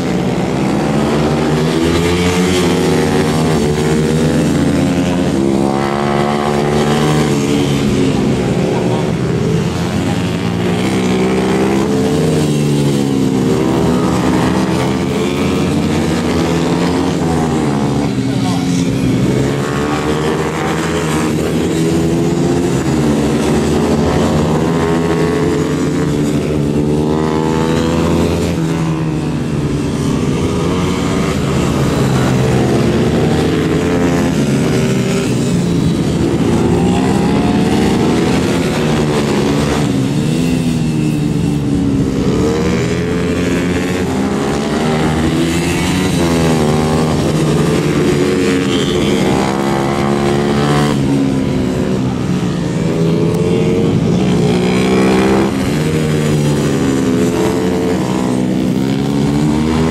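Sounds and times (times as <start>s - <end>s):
race motorcycles revving: 0.0s - 59.9s.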